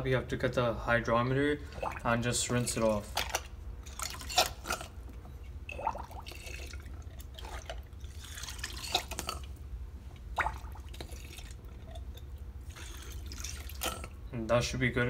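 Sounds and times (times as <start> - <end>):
steady low hum: 0.0 - 15.0
water splashing and dripping: 10.4 - 12.1.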